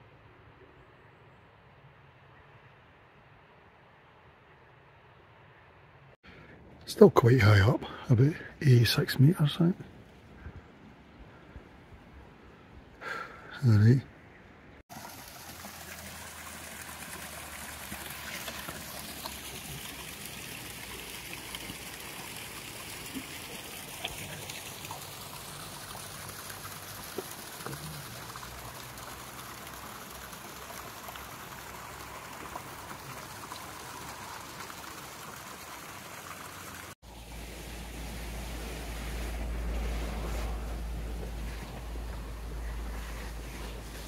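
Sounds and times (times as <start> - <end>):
stream trickling: 14.8 - 44.0.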